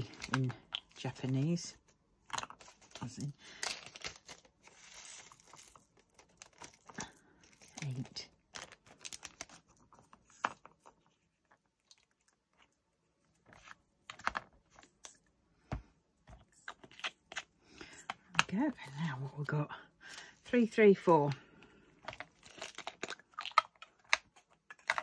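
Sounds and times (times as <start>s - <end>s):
plastic bag crinkling: 0.0s - 1.6s, 2.3s - 12.2s, 22.1s - 25.0s.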